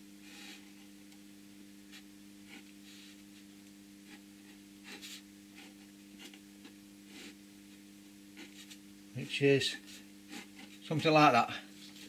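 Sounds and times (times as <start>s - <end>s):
steady low hum: 0.0s - 12.0s
pen scratching on card: 4.8s - 6.4s, 8.4s - 8.8s, 9.8s - 10.8s.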